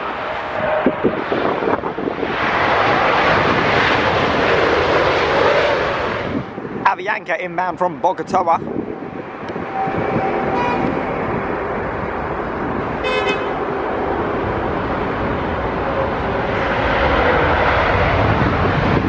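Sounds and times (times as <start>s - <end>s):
jet airliner engines approaching: 0.0s - 19.0s
short toot: 10.5s - 11.0s.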